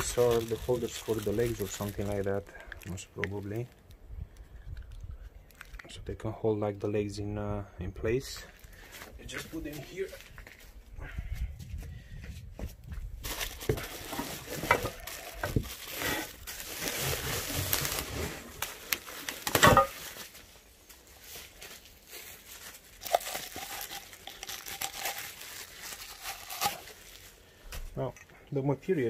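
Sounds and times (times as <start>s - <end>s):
bubble wrap crinkling: 0.0s - 5.9s, 13.2s - 27.8s.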